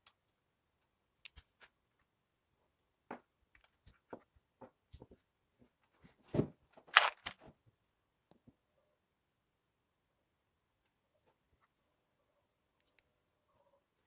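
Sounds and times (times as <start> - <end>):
clatter of plastic parts: 6.3 - 7.6
plastic pieces clicking: 6.9 - 7.5.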